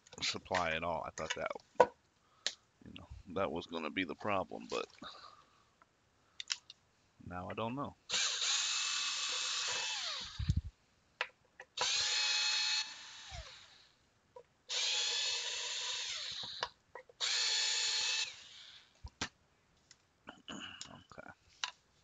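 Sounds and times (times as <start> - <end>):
small clicks: 6.4 - 6.8
cordless drill whining: 8.1 - 10.7, 11.8 - 14.0, 14.7 - 19.0.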